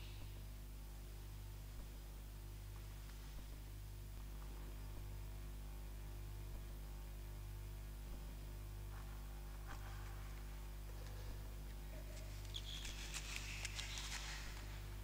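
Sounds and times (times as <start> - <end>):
electrical mains hum: 0.0 - 15.0
objects rustling and clicking: 10.9 - 14.8.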